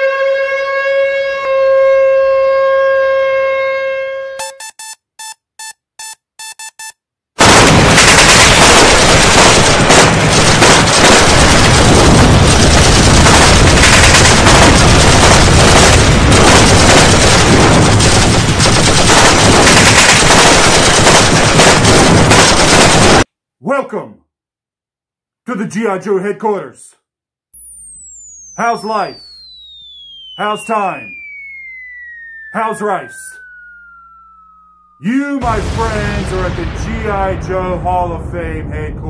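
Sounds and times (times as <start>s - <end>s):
short electronic beeps: 4.4s - 7.0s, 27.6s - 35.0s
rapid machine-gun fire: 7.4s - 23.3s.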